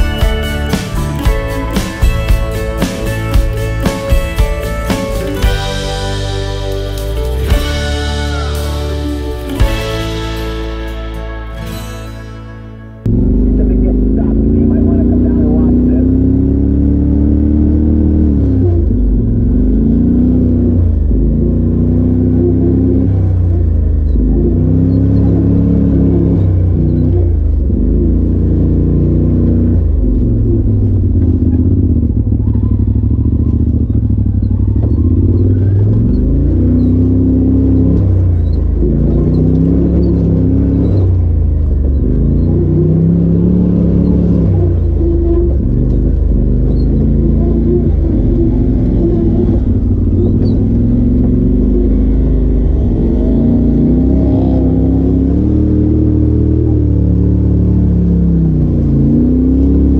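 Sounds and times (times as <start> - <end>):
engine revving from inside cab: 13.0 - 59.9.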